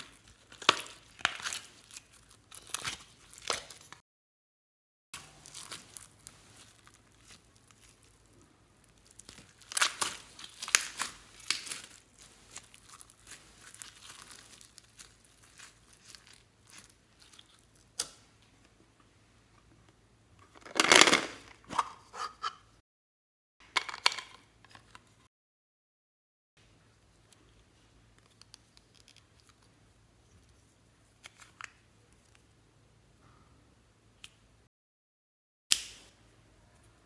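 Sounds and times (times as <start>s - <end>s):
slime crackling and crunching: 0.0s - 4.0s, 5.2s - 18.0s.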